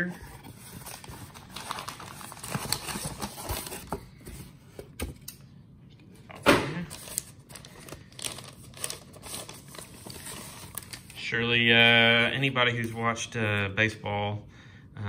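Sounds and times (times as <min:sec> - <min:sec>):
paper envelope rustling: 0:00.0 - 0:04.5, 0:06.9 - 0:11.2.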